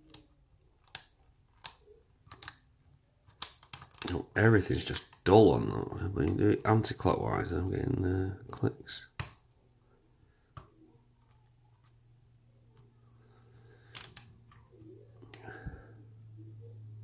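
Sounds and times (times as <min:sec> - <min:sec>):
lock pins clicking: 0:00.0 - 0:02.7, 0:03.3 - 0:04.2
low steady hum: 0:00.0 - 0:17.0.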